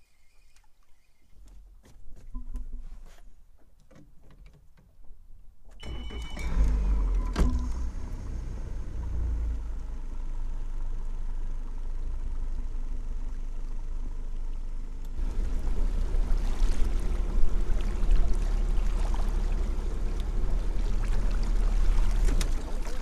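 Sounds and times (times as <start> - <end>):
boat motor running: 13.2 - 23.0.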